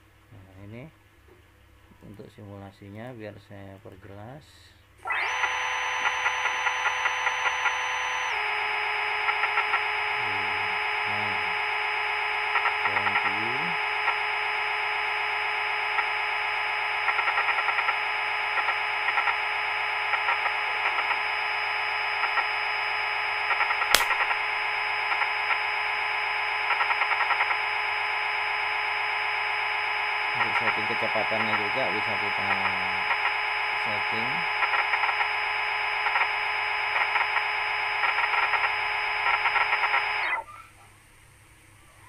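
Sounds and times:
electronic buzzing hum: 5.0s - 40.5s
sharp click: 23.9s - 24.4s.

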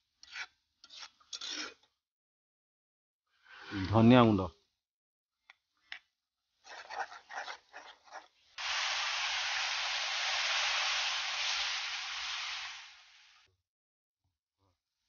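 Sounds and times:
spatula scraping in pan: 0.2s - 1.8s, 6.6s - 13.3s
water sizzling in hot oil: 8.6s - 13.5s.

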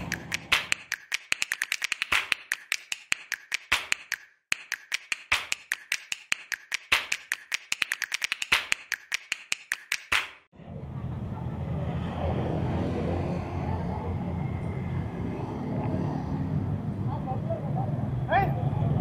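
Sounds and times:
rapid sharp clicks: 0.0s - 10.5s.

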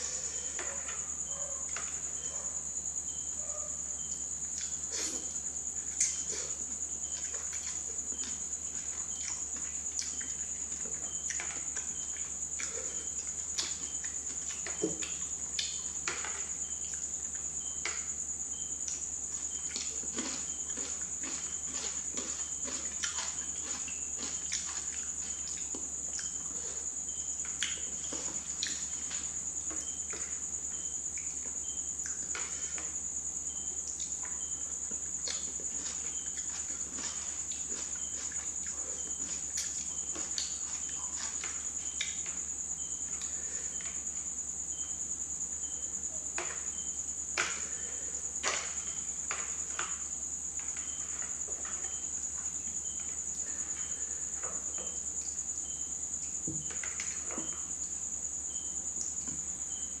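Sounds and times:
slurping and chewing: 18.8s - 31.4s, 33.5s - 43.9s.

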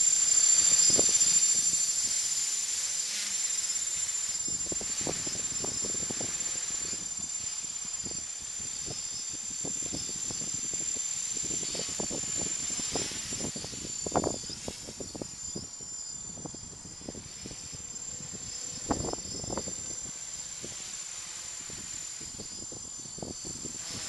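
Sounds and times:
drone motors whining: 0.0s - 24.0s
wind buffeting microphone: 4.5s - 7.3s, 8.0s - 15.7s, 16.3s - 20.9s.

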